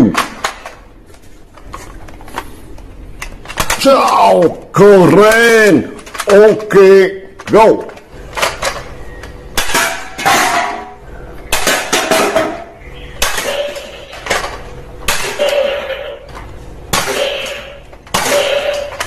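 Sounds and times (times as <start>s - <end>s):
hard objects knocking and crashing: 3.2s - 4.7s, 7.4s - 19.0s.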